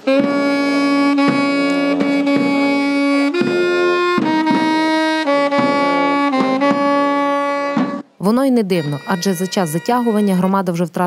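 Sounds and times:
brass band funeral march: 0.0s - 8.1s.

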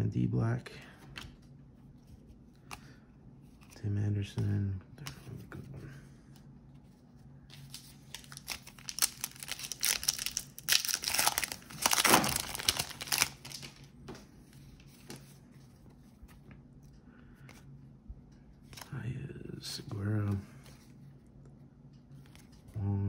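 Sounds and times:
foil wrapper tearing and crinkling: 7.6s - 13.9s.

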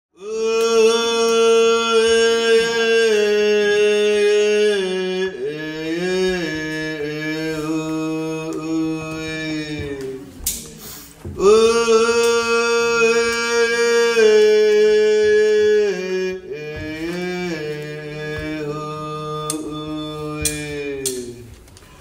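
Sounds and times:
person singing long held notes: 0.1s - 21.6s
short hiss: 10.6s - 11.2s.

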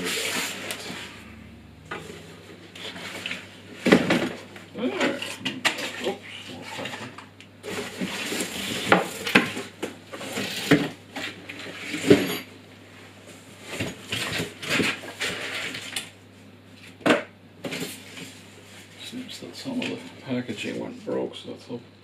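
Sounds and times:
cardboard scraping and rustling: 0.0s - 1.3s, 2.0s - 4.5s, 5.2s - 12.2s, 13.6s - 16.0s.

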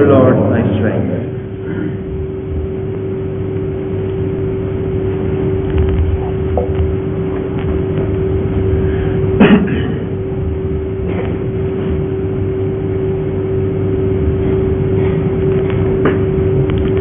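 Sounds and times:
steady hum: 0.0s - 17.0s
low rumble: 1.4s - 9.4s.

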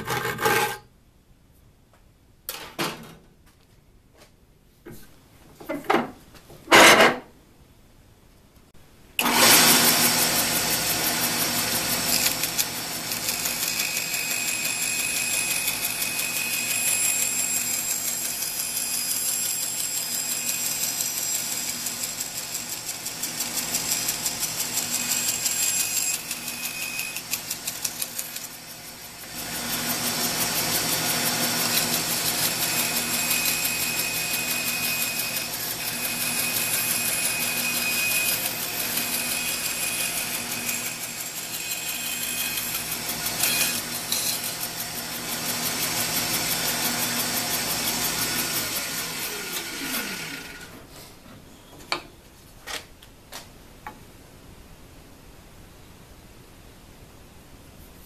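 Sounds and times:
bandsaw cutting plywood: 0.0s - 0.8s, 9.2s - 50.8s.

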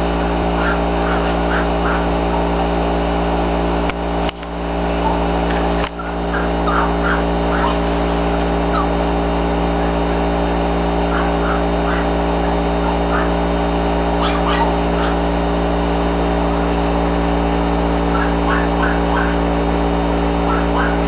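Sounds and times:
mechanical hum: 0.0s - 21.0s
puppy whimpering and yipping: 6.0s - 7.8s, 14.2s - 15.2s.

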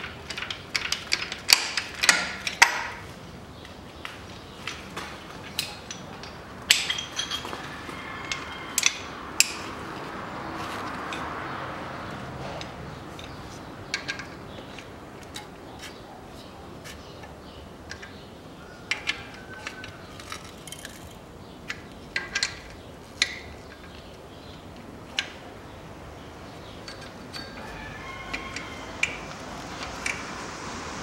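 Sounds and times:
hand tools clinking on metal: 5.4s - 9.7s.

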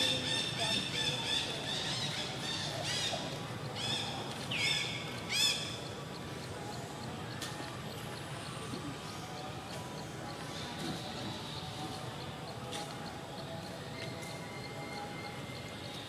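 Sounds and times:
faint rapid ticking: 1.9s - 16.0s.

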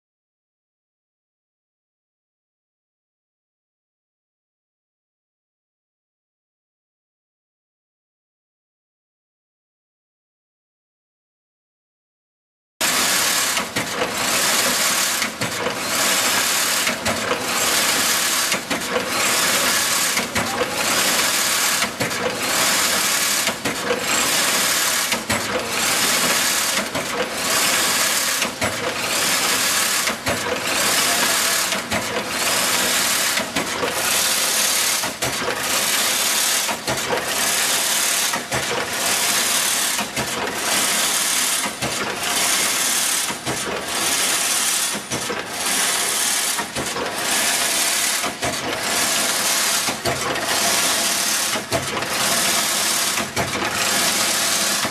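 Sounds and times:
weaving machine clattering: 12.8s - 54.9s.

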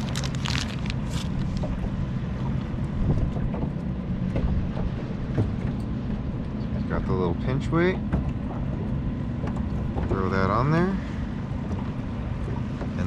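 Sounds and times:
plastic packet crinkling: 0.0s - 1.6s
boat motor humming: 0.0s - 13.0s.

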